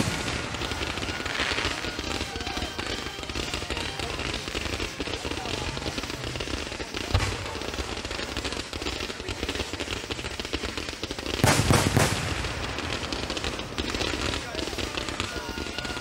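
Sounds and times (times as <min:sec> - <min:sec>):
fireworks bangs: 0:00.0 - 0:16.0
fireworks crackling: 0:00.0 - 0:16.0.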